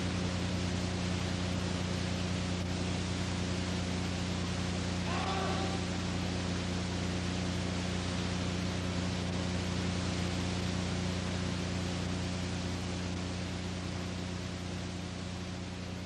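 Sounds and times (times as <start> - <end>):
tape hiss: 0.0 - 16.0
low hum: 4.4 - 8.4.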